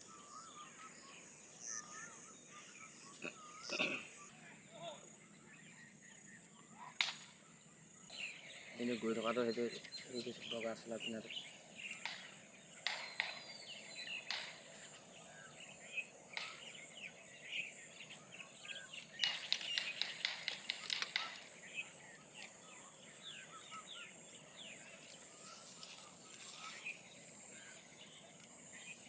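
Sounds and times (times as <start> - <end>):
birds chirping and calling: 0.0 - 29.0
rapid sharp ticks: 19.2 - 21.4.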